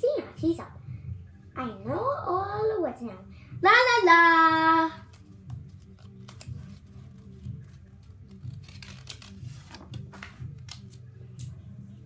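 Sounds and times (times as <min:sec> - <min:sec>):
book pages rustling: 0:05.0 - 0:11.1.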